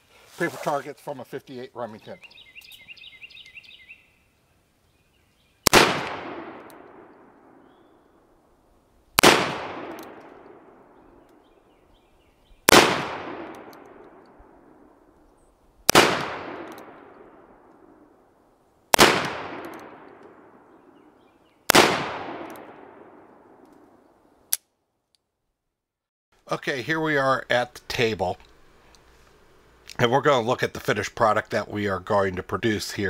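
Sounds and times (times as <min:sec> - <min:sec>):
revolver gunshots: 0:05.6 - 0:07.8, 0:09.2 - 0:11.2, 0:12.6 - 0:15.0, 0:15.9 - 0:18.0, 0:18.9 - 0:21.0, 0:21.7 - 0:23.9.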